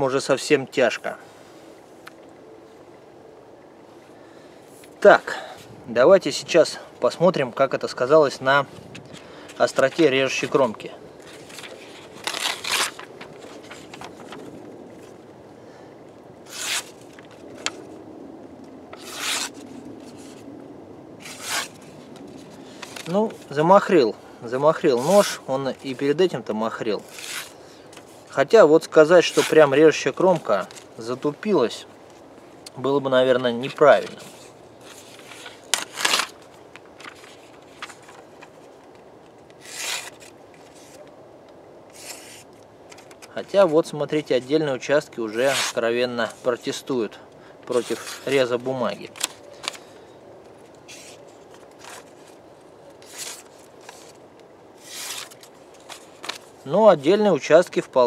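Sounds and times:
page tearing from a book: 11.4 - 14.0, 16.5 - 17.0, 19.0 - 20.4, 21.2 - 21.9, 27.0 - 27.6, 29.3 - 29.7, 34.0 - 36.4, 39.6 - 41.0, 41.9 - 42.5, 45.3 - 46.4, 47.7 - 48.4, 50.9 - 52.4, 53.0 - 54.2, 54.8 - 56.5
blade slicing paper: 11.5 - 13.1, 16.5 - 17.0, 19.0 - 19.6, 21.2 - 21.8, 39.6 - 40.3, 54.8 - 55.5
blade cutting paper: 19.0 - 19.6.

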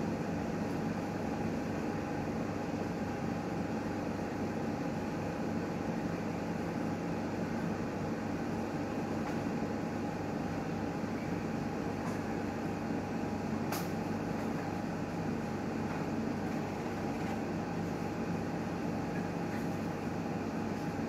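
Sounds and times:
sharp click: 13.7 - 14.0.

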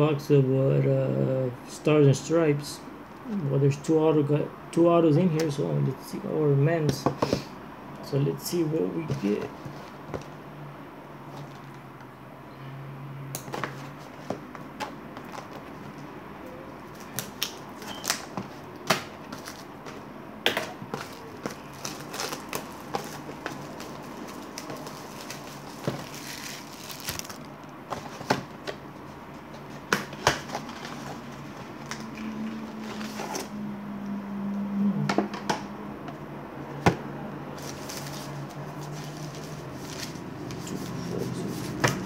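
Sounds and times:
plastic wrap crackling: 20.9 - 28.2.

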